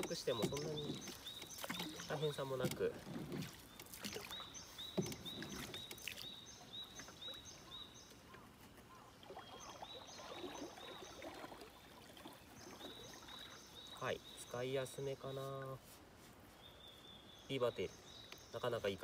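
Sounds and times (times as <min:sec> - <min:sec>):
light knock on canoe: 0:00.0 - 0:04.2, 0:04.8 - 0:06.0
canoe paddle swishes and drips: 0:00.0 - 0:17.4.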